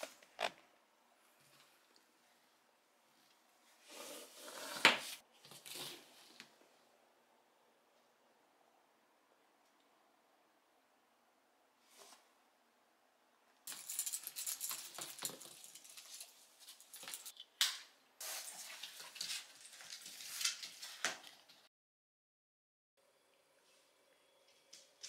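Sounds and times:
harness clips clinking and rattling: 13.7 - 17.3.

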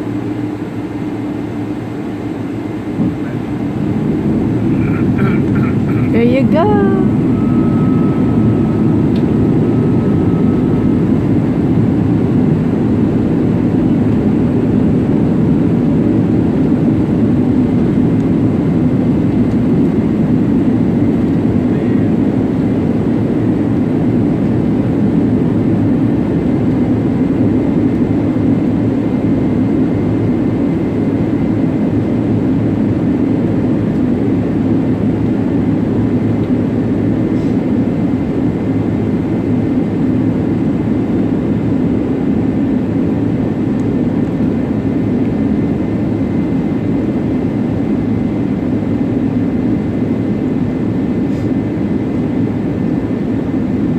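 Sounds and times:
jet engines humming: 0.0 - 53.9.

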